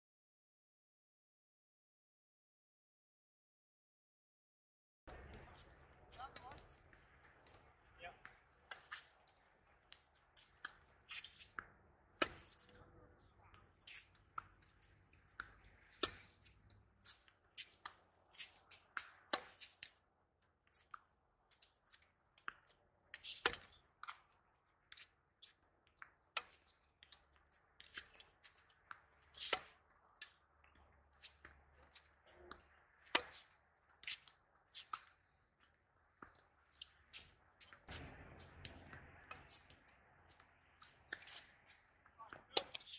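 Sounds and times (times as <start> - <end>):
tennis balls bouncing on hard court: 5.1 - 19.9, 26.0 - 35.2, 36.1 - 42.9
tennis balls struck by rackets: 5.1 - 20.0, 23.2 - 25.2, 26.0 - 35.3, 36.1 - 42.9.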